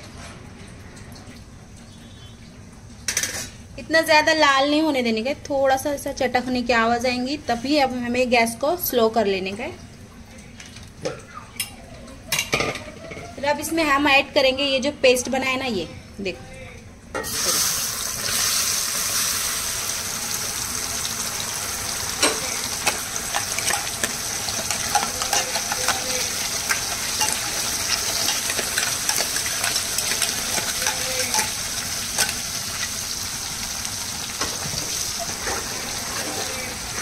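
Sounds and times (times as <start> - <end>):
paste sizzling in hot oil: 17.2 - 37.0.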